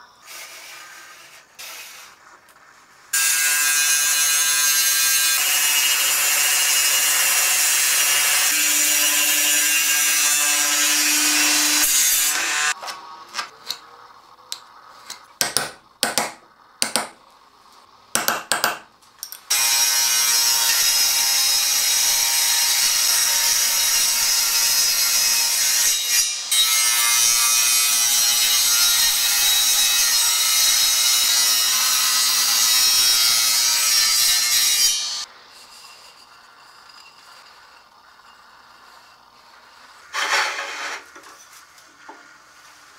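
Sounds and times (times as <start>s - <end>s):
table saw cutting wood: 3.1s - 12.8s, 19.5s - 36.3s, 37.0s - 41.3s.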